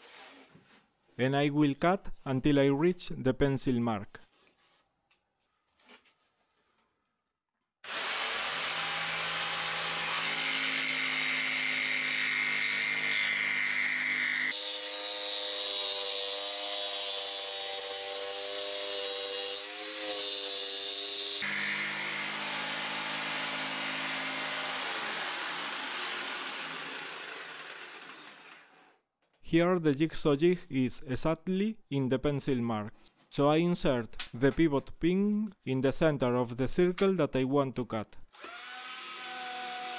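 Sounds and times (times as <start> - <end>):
jigsaw cutting wood: 7.8 - 29.0, 38.4 - 39.9.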